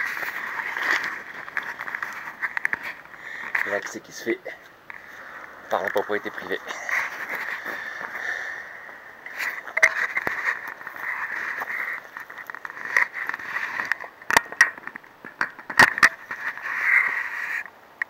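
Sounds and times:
branches snapping: 0.0 - 4.0, 8.9 - 17.1
branches crackling and scraping: 0.0 - 18.0.

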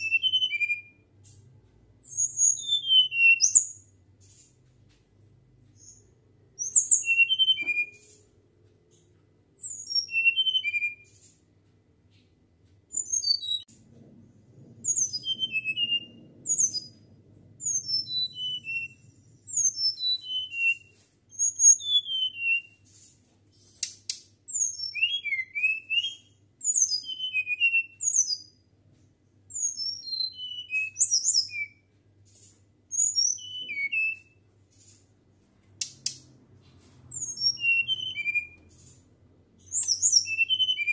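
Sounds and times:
bird singing whistled notes: 0.0 - 1.0, 2.0 - 3.9, 5.8 - 8.2, 9.6 - 11.1, 12.9 - 13.7, 14.8 - 17.0, 17.6 - 22.8, 24.5 - 28.6, 29.5 - 31.9, 32.9 - 34.4, 37.1 - 39.0, 39.6 - 40.9.

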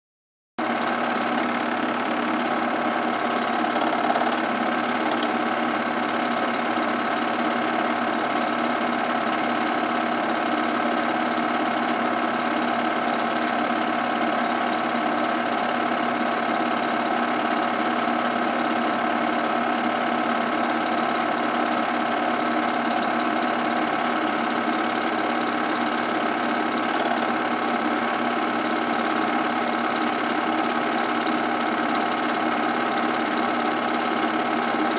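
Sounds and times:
film projector whirring: 0.6 - 34.9.

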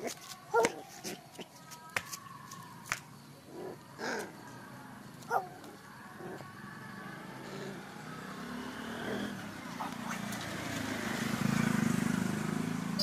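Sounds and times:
vehicle engine approaching: 3.6 - 13.0.

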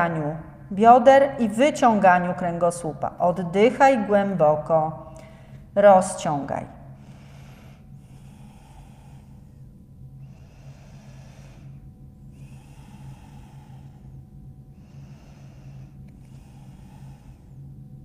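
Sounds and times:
steady low hum: 0.0 - 18.0
woman breathing deeply: 5.0 - 5.8, 6.8 - 18.0.

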